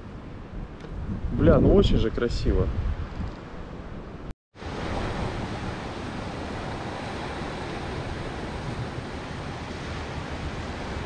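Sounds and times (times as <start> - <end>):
wind buffeting microphone: 0.0 - 11.0
surf breaking over rocks: 4.6 - 11.0.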